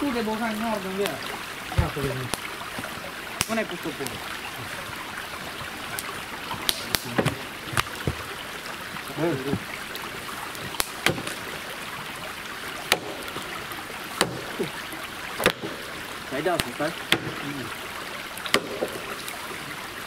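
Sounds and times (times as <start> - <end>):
sharp knocks and taps: 1.7 - 5.0, 5.6 - 8.3, 10.6 - 11.4.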